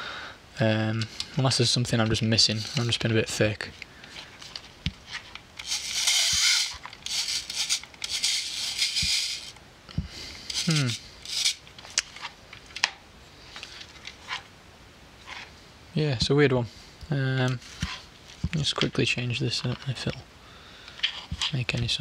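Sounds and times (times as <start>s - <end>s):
camera winding knob ratcheting: 5.6s - 9.6s.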